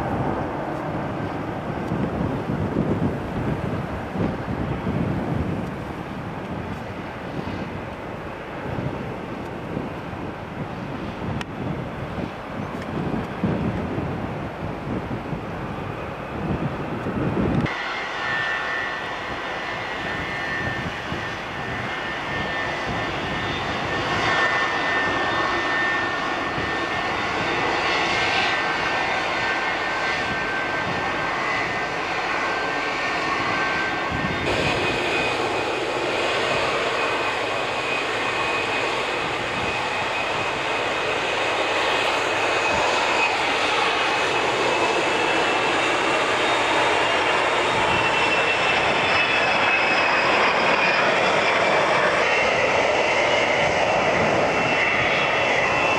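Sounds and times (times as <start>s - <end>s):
jet airliner engines roaring: 0.0s - 55.9s
jet on approach whining: 0.0s - 55.9s.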